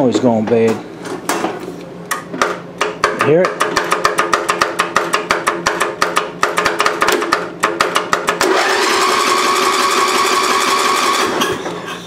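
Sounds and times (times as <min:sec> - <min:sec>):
engine cranking by starter: 0:08.4 - 0:11.8.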